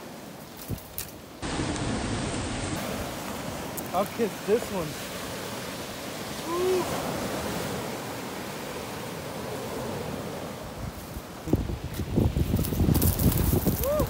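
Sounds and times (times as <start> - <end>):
ocean waves breaking on beach: 0.0 - 14.0.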